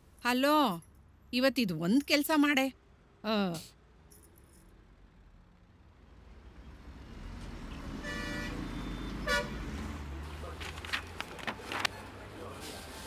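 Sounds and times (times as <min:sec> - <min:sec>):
road traffic rumbling: 0:00.0 - 0:13.0
car horn toots: 0:08.0 - 0:09.6.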